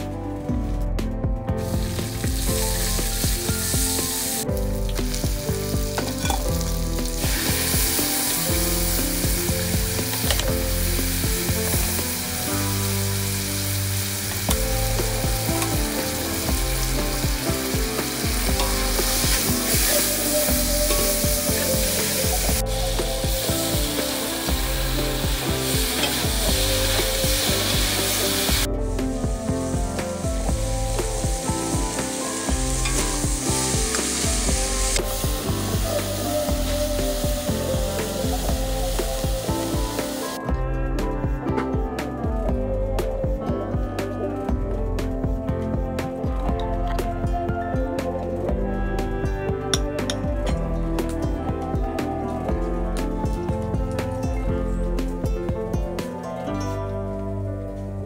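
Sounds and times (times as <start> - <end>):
food sizzling in a wok: 1.6 - 40.5.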